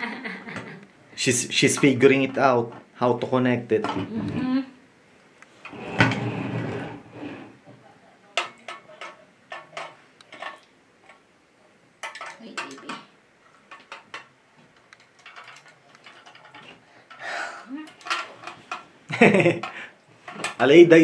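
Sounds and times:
metal toy trucks clattering: 0:15.0 - 0:17.2.

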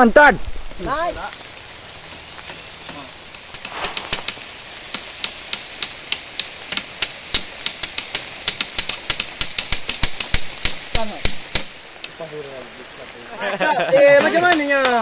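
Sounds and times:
steady rain hissing: 0:00.0 - 0:15.0
hand tool knocking on wood: 0:03.5 - 0:12.2, 0:14.2 - 0:15.0.

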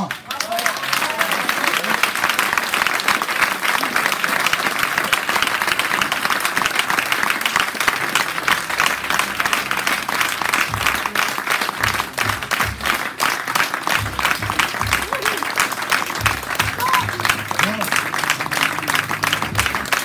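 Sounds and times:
audience applauding: 0:00.0 - 0:20.0.

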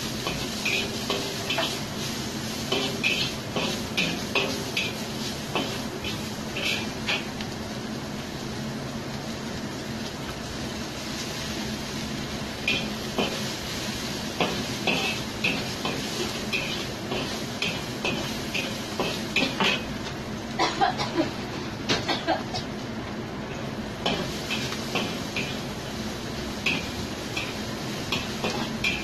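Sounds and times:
metal spatula scraping a wok: 0:00.2 - 0:07.3, 0:26.7 - 0:29.0.

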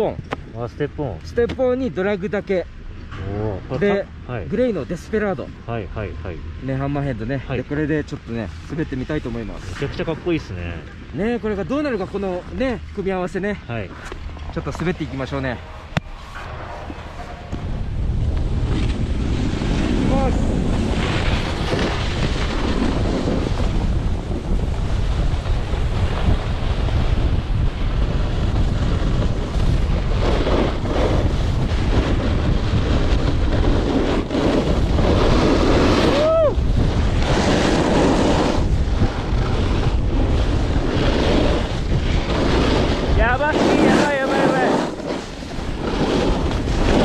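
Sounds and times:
wind buffeting microphone: 0:02.6 - 0:47.0
snowboard carving on snow: 0:06.7 - 0:47.0.

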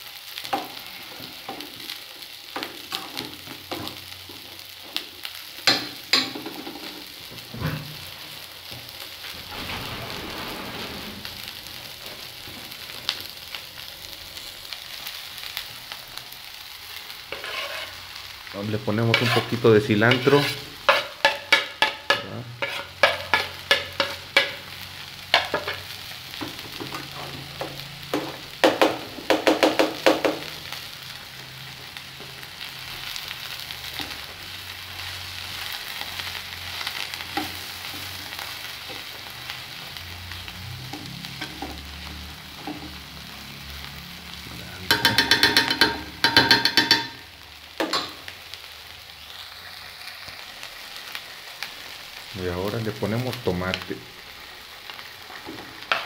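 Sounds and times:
vegetables sizzling in oil: 0:00.0 - 0:56.0
utensils scraping pan: 0:17.3 - 0:18.1, 0:18.8 - 0:24.6.

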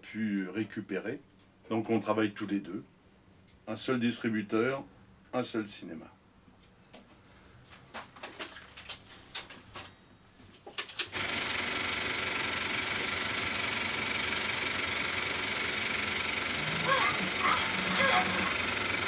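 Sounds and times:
film projector running: 0:11.0 - 0:19.0.

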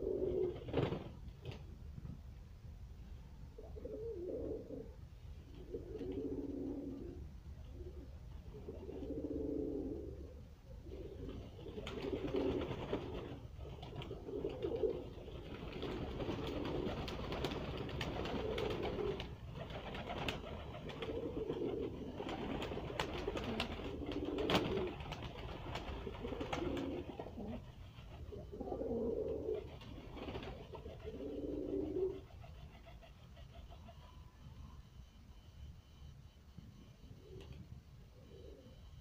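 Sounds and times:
pigeons cooing: 0:00.0 - 0:01.0, 0:03.6 - 0:34.6, 0:37.1 - 0:39.0
wing flap: 0:00.2 - 0:01.7, 0:11.2 - 0:28.3, 0:29.5 - 0:31.2.

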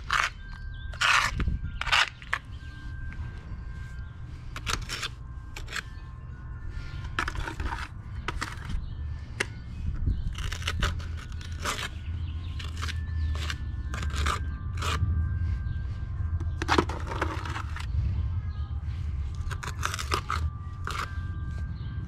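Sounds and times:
trowel scraping cement: 0:00.0 - 0:02.5, 0:04.5 - 0:06.0, 0:07.1 - 0:08.8, 0:10.3 - 0:12.0, 0:12.6 - 0:15.0, 0:19.5 - 0:21.2
steady low rumble: 0:00.0 - 0:22.0.

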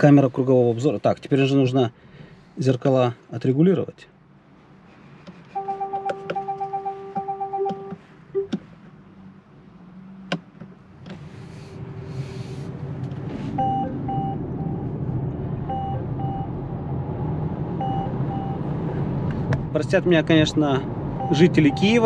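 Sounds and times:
road and tyre noise: 0:00.0 - 0:22.0
rapid beeping: 0:21.2 - 0:22.0.

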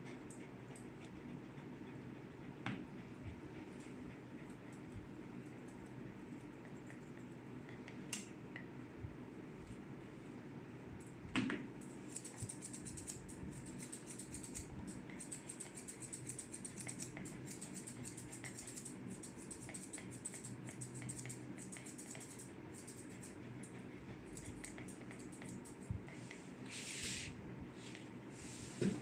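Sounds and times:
shears snipping hair: 0:11.8 - 0:23.3.

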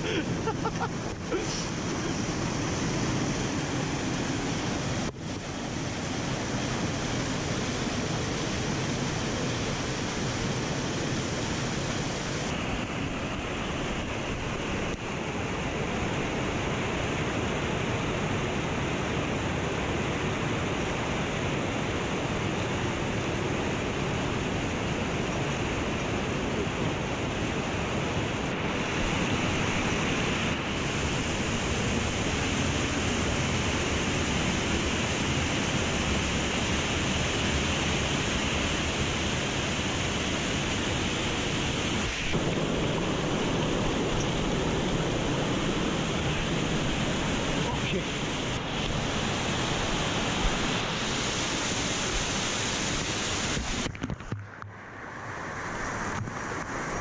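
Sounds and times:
mountain stream rushing: 0:00.0 - 0:57.0.

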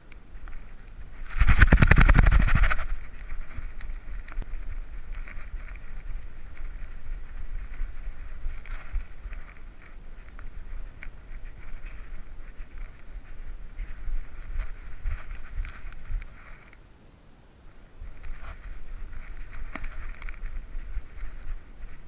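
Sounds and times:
small clicks: 0:00.0 - 0:16.8
rustle and buffeting: 0:00.0 - 0:22.0
camera harness rubbing and knocking: 0:00.4 - 0:16.8, 0:18.0 - 0:22.0
fast rattle of knocks: 0:01.3 - 0:02.9.

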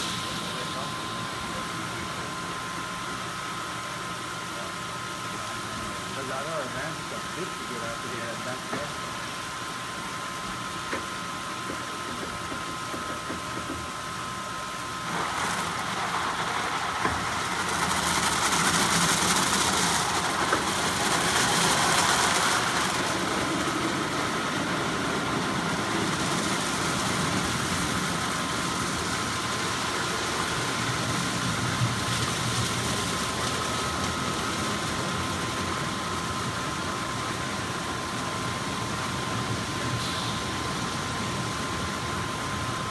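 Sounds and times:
machine whine: 0:00.0 - 0:42.9
car wash brushes and water spray: 0:14.8 - 0:42.9.

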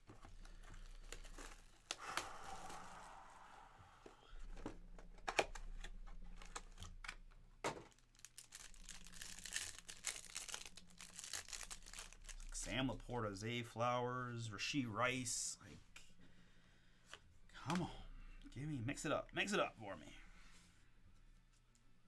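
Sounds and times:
plastic wrap crackling: 0:00.0 - 0:03.4, 0:05.1 - 0:12.7
plastic wrap tearing: 0:00.1 - 0:03.1, 0:07.8 - 0:12.6.

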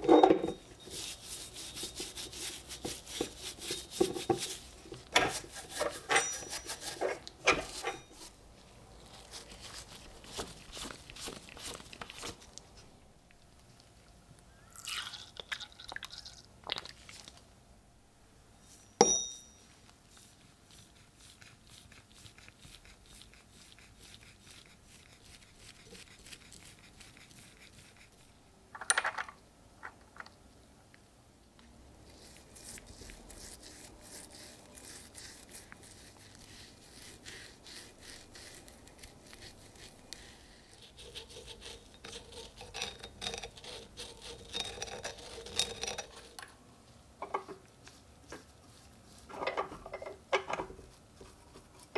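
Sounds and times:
bristle brush scrubbing metal: 0:00.8 - 0:08.4, 0:40.7 - 0:46.4
sharp metal clink: 0:19.0 - 0:19.6.

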